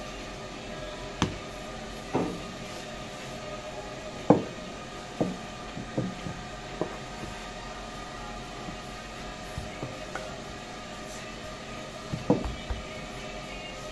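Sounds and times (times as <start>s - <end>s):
mechanical hum: 0.0s - 13.9s
objects knocking and clattering: 5.2s - 7.3s, 12.1s - 13.0s.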